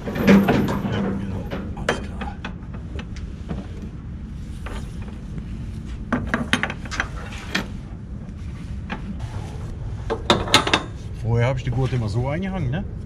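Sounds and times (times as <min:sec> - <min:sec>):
low rumble: 0:07.7 - 0:12.0.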